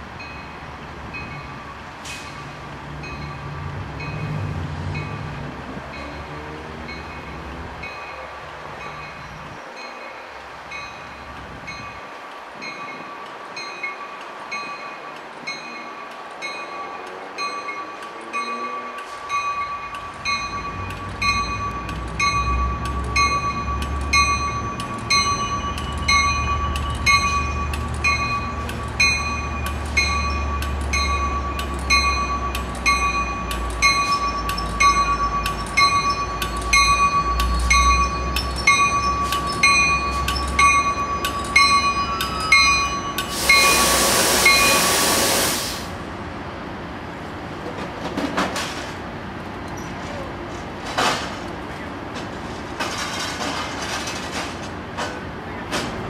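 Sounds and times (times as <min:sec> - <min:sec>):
train rumble: 0:00.0 - 0:56.0
train bell ringing: 0:00.2 - 0:05.3, 0:05.9 - 0:45.0.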